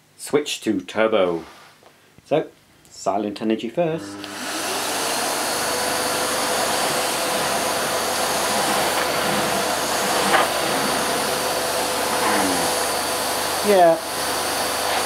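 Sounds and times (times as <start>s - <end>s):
vacuum cleaner running: 3.8s - 15.0s.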